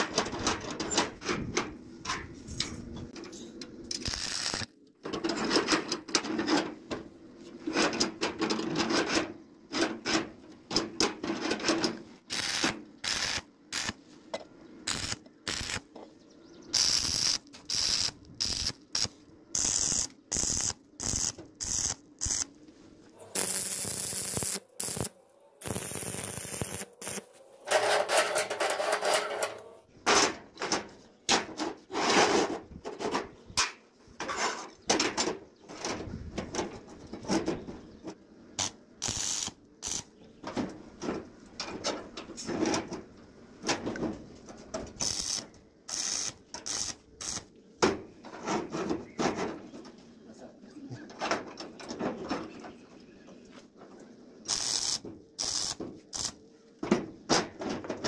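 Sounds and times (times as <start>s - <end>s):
electric arc welding crackling: 4.0s - 4.7s, 12.3s - 14.0s, 14.9s - 15.9s, 16.8s - 22.5s, 23.3s - 27.3s, 38.6s - 40.1s, 45.0s - 47.5s, 54.5s - 56.4s.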